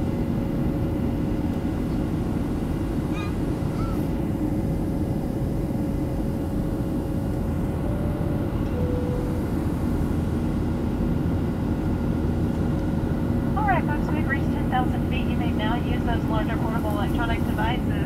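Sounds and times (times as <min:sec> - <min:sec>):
faint steady hum: 0:00.0 - 0:18.0
jet engine cabin noise: 0:00.0 - 0:18.0.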